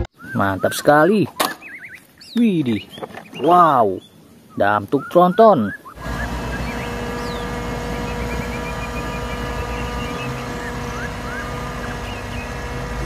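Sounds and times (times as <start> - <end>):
birds chirping: 0.0 - 13.0
diesel truck engine running: 6.0 - 13.0.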